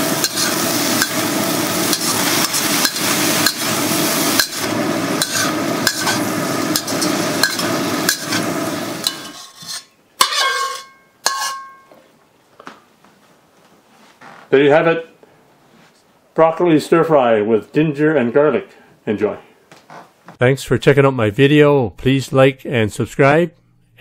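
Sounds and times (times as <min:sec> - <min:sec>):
metal spatula scraping wok: 0:00.0 - 0:11.8
vegetables sizzling in a wok: 0:00.0 - 0:11.8
clink on a plate: 0:10.2 - 0:12.0.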